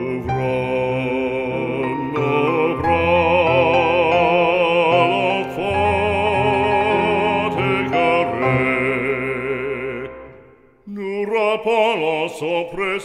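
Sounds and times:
soft musical accompaniment: 0.0s - 10.6s
operatic voice singing a hymn: 0.0s - 13.0s.

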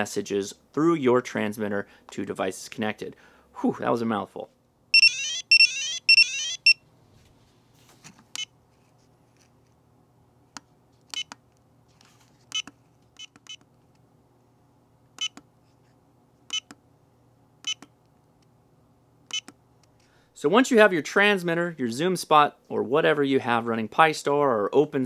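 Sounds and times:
pager pulsing alert tone: 5.0s - 6.8s
short high key beeps: 5.0s - 6.8s.

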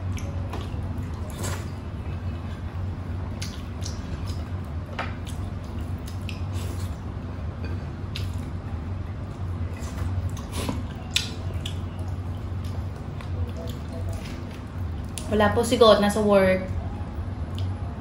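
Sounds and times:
steady low hum: 0.0s - 18.0s
wet mouth smacks and chewing: 3.4s - 4.5s, 5.2s - 7.0s, 8.1s - 8.5s, 9.9s - 15.3s.

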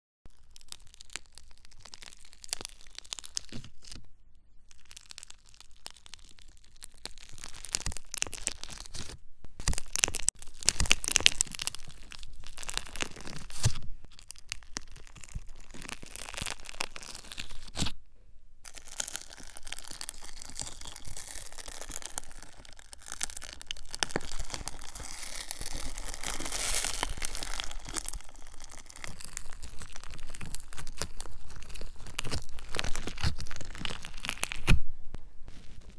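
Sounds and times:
crackling and scratching at microphone: 0.3s - 35.9s.

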